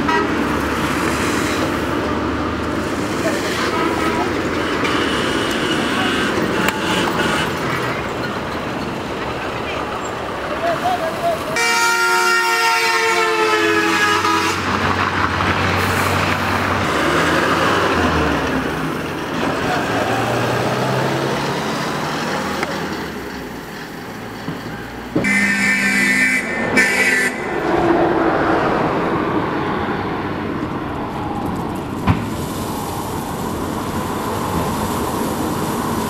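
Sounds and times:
car horn: 0:00.0 - 0:00.4, 0:11.6 - 0:14.7, 0:25.2 - 0:27.5
highway traffic passing: 0:00.0 - 0:36.0.

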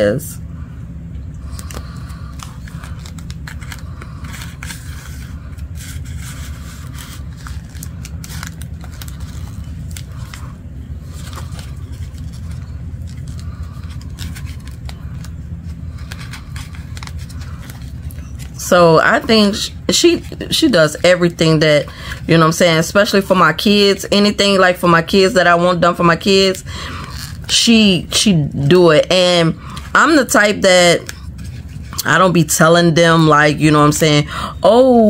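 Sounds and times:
steady low hum: 0:00.0 - 0:35.0
wrapper rustling and crinkling: 0:01.6 - 0:18.6.

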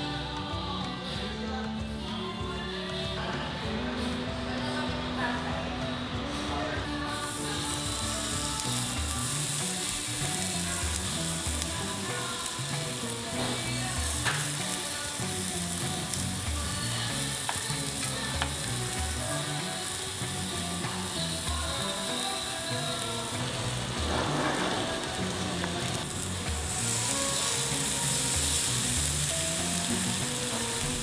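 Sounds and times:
meat sizzling on a grill: 0:07.0 - 0:31.0.

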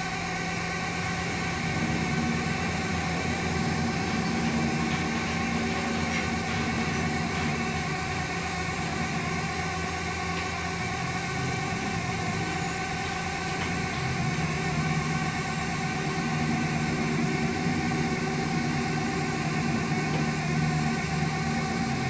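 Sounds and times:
machinery hum: 0:00.0 - 0:22.0.

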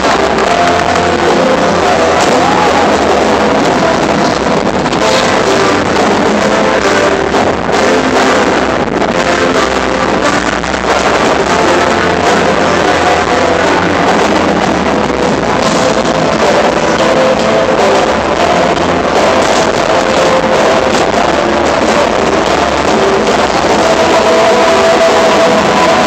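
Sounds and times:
live music over arena sound system: 0:00.0 - 0:26.0.

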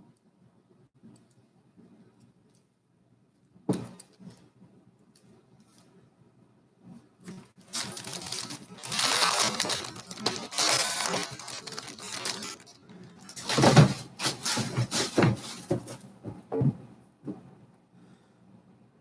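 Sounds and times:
rustling and handling noise: 0:06.9 - 0:17.6.

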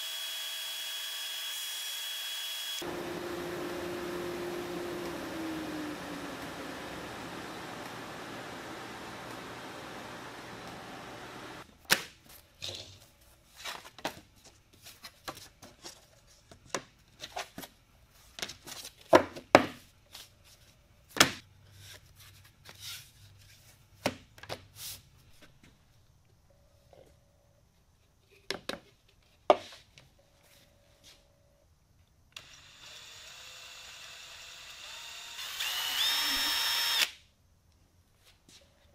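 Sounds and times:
belt sander running: 0:02.4 - 0:11.6, 0:32.4 - 0:37.1.

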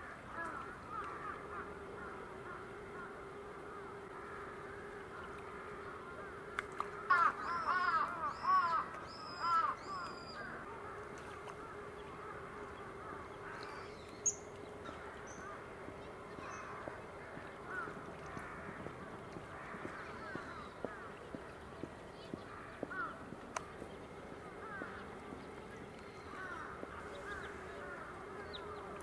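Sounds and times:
crow cawing: 0:00.0 - 0:04.8, 0:07.0 - 0:10.9, 0:16.4 - 0:21.1, 0:22.5 - 0:23.2, 0:24.6 - 0:25.0, 0:26.2 - 0:28.2
bird calls: 0:00.0 - 0:29.0.

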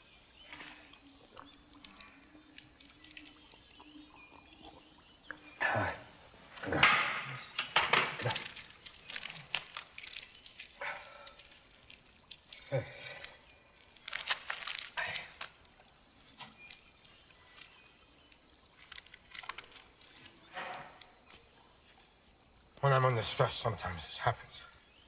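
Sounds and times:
candy wrapper crinkling: 0:00.4 - 0:04.0, 0:08.0 - 0:17.9, 0:18.6 - 0:20.4.

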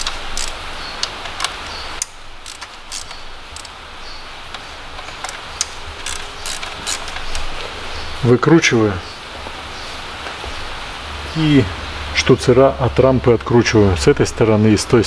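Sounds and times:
hand ratchet clicking: 0:00.0 - 0:03.8, 0:05.0 - 0:07.5.

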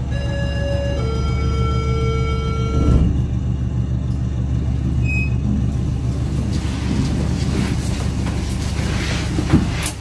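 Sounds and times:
lift car rumbling: 0:00.0 - 0:10.0
lift rattling: 0:04.1 - 0:10.0.

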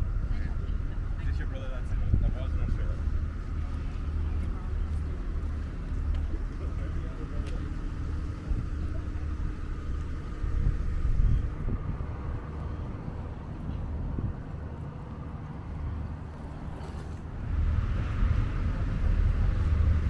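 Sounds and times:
low rumble of road traffic: 0:00.0 - 0:20.0.

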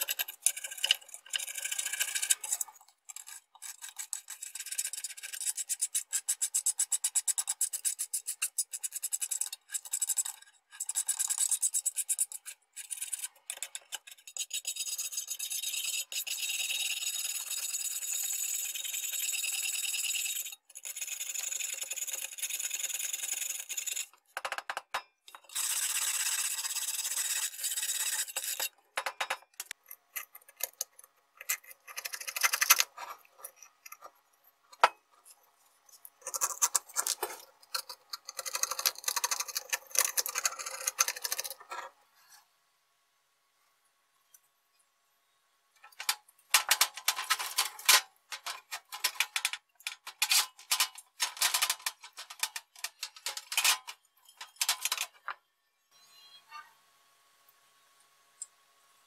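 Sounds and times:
wire brush scraping sheet metal: 0:25.4 - 0:28.8, 0:46.0 - 0:55.2.

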